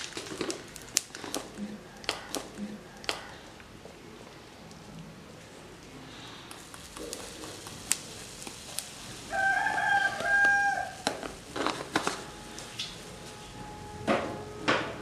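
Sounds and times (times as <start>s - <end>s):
sharp clicks: 0.8s - 3.7s
oil sizzling in a wok: 6.6s - 11.9s
rooster crowing: 9.3s - 11.0s.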